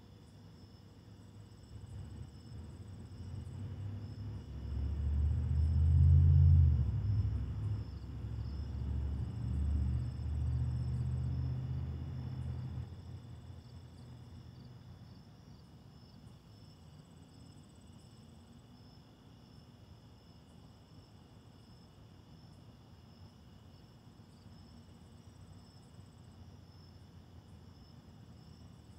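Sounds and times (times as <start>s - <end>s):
crickets chirping: 0.0s - 28.9s
vehicle engine passing: 1.9s - 13.4s.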